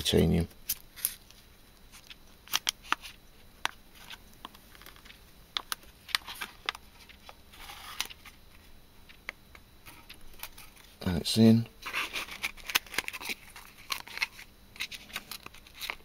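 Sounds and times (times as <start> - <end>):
foil crinkling and rustling: 11.8 - 16.0.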